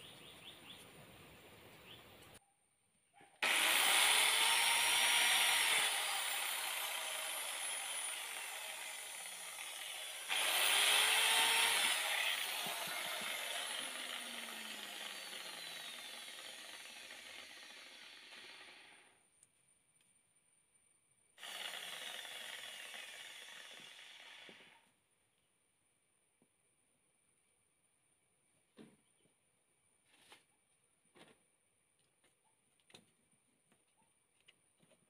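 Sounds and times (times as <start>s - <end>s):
electric drill boring into shell: 3.4s - 19.2s, 21.4s - 24.8s.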